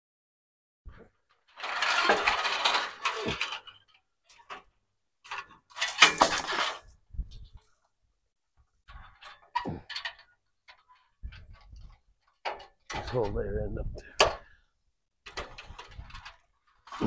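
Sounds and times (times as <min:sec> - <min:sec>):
chain-link fence rattling: 0:01.3 - 0:07.5.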